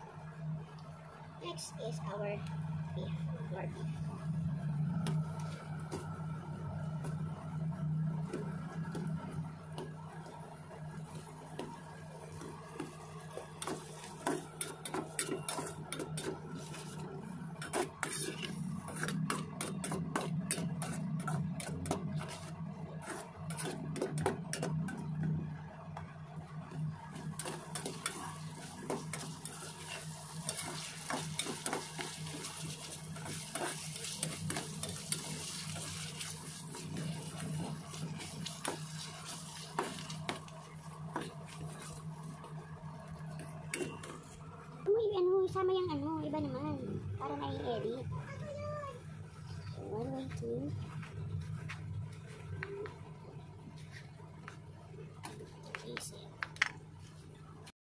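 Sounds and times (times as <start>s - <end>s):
low steady hum: 0.0s - 57.7s
metal spatula scraping pan: 13.6s - 24.2s, 27.4s - 40.3s
mushrooms sizzling: 27.2s - 42.1s.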